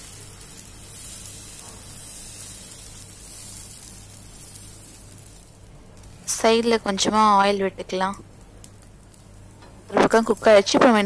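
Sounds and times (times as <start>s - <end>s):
batter sizzling on a griddle: 0.0s - 11.0s.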